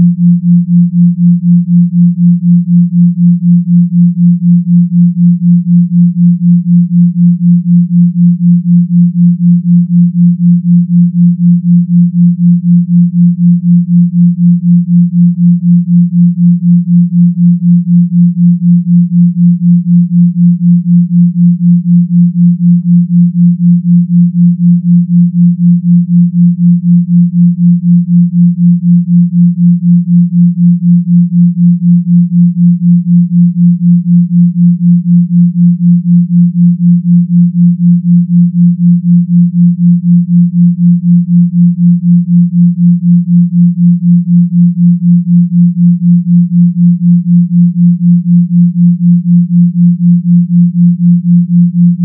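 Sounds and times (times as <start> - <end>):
pulsing low sine hum: 0.0 - 52.0.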